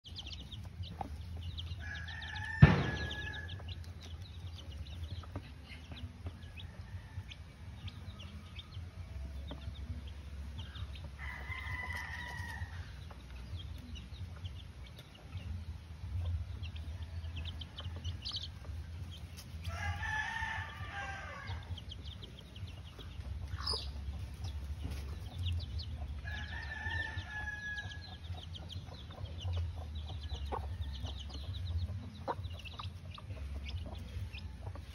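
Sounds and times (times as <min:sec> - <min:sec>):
roosters crowing: 0:01.4 - 0:04.0, 0:04.6 - 0:13.3, 0:16.8 - 0:22.6, 0:23.7 - 0:28.5, 0:29.6 - 0:32.4
sharp knock: 0:02.6 - 0:03.4.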